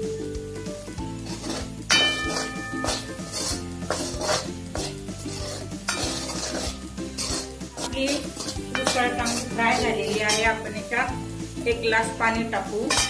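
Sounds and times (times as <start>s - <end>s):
light sizzle: 0.0s - 13.0s
ladle scraping metal pan: 1.1s - 10.7s, 12.8s - 13.0s.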